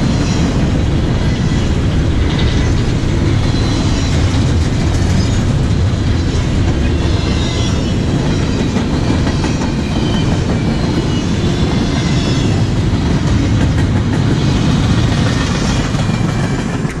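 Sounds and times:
freight train wheels rumbling: 0.0s - 17.0s.

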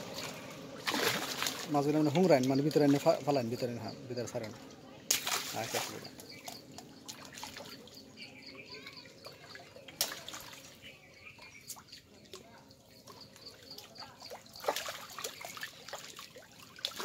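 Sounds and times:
shallow water splashing and dripping: 0.0s - 17.0s
fish slapping: 0.1s - 1.7s, 5.1s - 7.7s, 9.9s - 10.7s.

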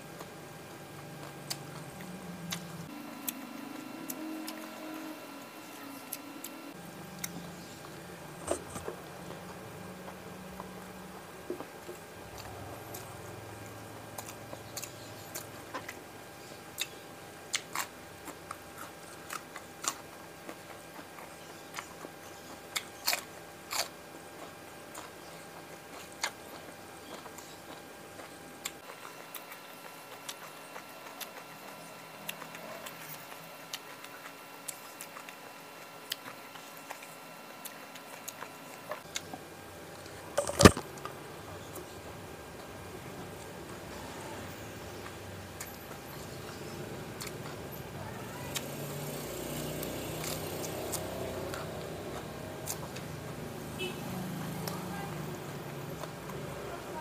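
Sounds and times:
food crunching: 0.2s - 16.0s, 16.7s - 47.7s, 48.5s - 53.8s
person chewing: 1.0s - 6.3s, 7.1s - 16.0s, 16.8s - 41.1s, 44.9s - 47.6s, 49.7s - 53.2s.

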